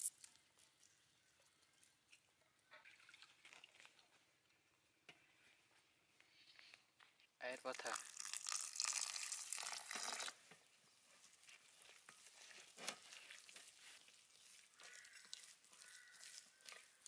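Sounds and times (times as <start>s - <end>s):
water pouring into metal tray: 7.7s - 10.5s
hand kneading wet paste: 10.8s - 17.0s.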